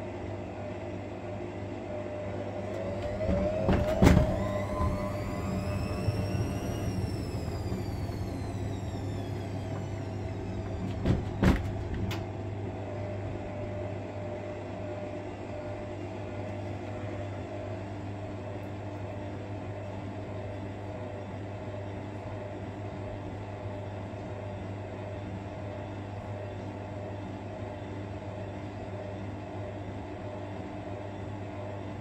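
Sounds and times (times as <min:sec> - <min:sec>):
washing machine motor whine: 0:00.0 - 0:32.0
steady hum: 0:01.8 - 0:18.1
knocks: 0:03.2 - 0:05.0, 0:10.7 - 0:12.2.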